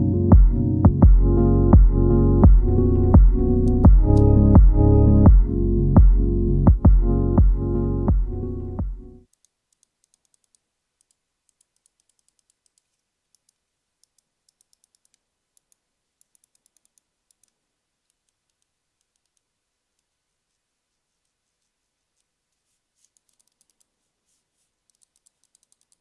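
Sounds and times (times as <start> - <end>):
computer mouse clicks: 9.3 - 20.1, 23.0 - 23.9, 24.8 - 26.0.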